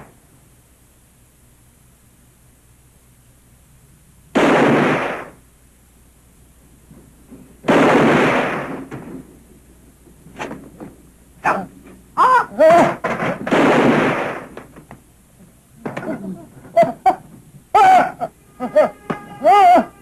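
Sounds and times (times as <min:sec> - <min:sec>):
gunshots: 0:04.3 - 0:05.4, 0:07.6 - 0:09.2, 0:12.8 - 0:14.8.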